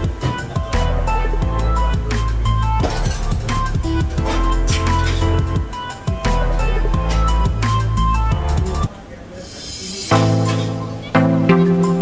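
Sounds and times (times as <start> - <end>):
background music with held chords: 0.0 - 8.9, 10.1 - 12.0.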